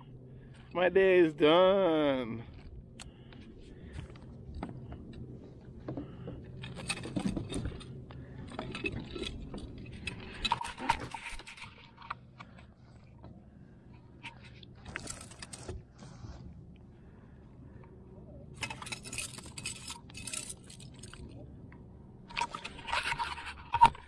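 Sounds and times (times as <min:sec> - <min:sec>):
low steady hum: 0:00.0 - 0:24.0
fishing gear clinking and rattling: 0:03.9 - 0:13.2, 0:13.8 - 0:15.8, 0:18.5 - 0:21.4, 0:22.2 - 0:24.0.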